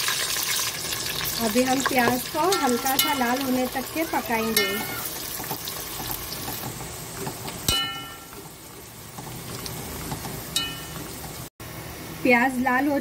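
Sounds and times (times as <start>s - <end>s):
onions sizzling in hot oil: 0.0s - 11.5s
metal ladle clinking pot: 7.6s - 8.4s, 10.5s - 11.0s.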